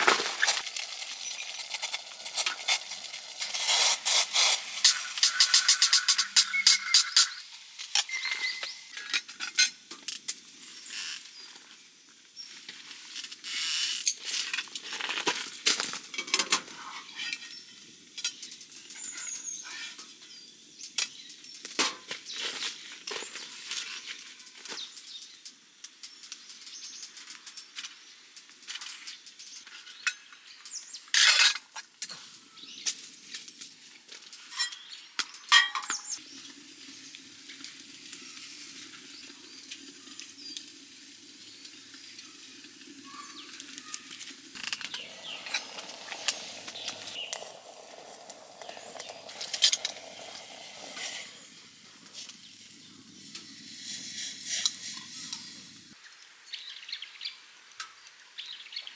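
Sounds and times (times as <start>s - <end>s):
frying pan sizzling: 0.0s - 11.0s, 35.5s - 56.0s
metal utensils clinking: 34.4s - 34.9s, 35.5s - 36.2s.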